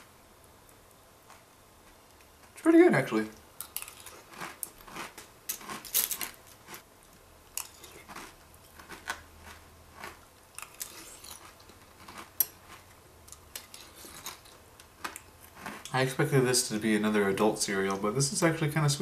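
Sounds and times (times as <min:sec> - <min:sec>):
person chewing crunchy cereal: 0:03.6 - 0:06.8, 0:07.5 - 0:16.0.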